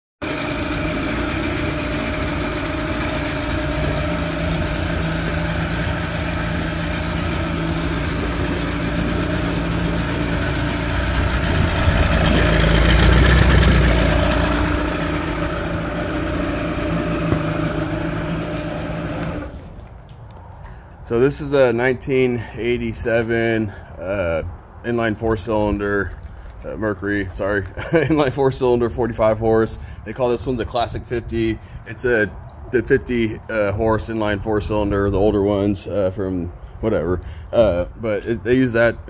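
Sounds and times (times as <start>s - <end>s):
outboard motor running: 0.2s - 19.9s.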